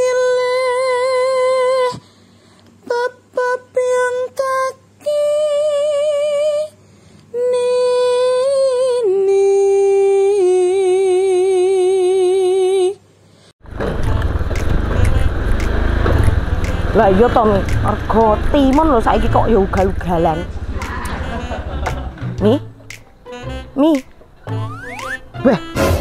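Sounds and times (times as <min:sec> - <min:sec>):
woman singing wordlessly: 0:00.0 - 0:02.0, 0:02.8 - 0:06.8, 0:07.4 - 0:13.0, 0:16.2 - 0:21.5, 0:22.4 - 0:22.7, 0:23.3 - 0:24.7
outdoor street noise: 0:13.6 - 0:26.0.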